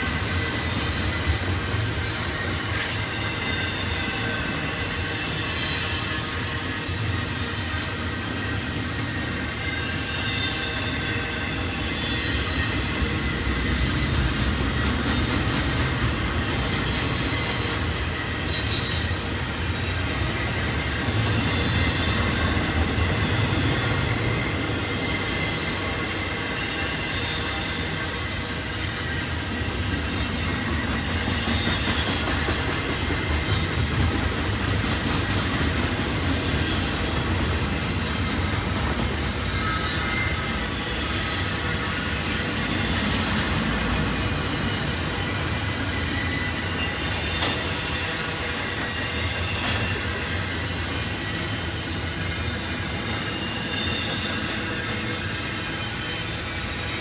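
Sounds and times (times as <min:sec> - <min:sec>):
train wheels rumbling on track: 0:00.0 - 0:57.0
high-pitched wheel squeal: 0:39.2 - 0:57.0.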